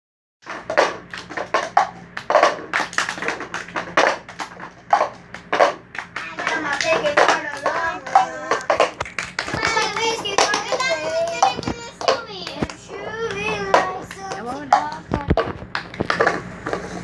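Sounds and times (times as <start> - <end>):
plastic cups tapped on wooden floor: 0.4 - 16.8
hand claps: 1.0 - 16.3
children's voices: 6.2 - 15.4.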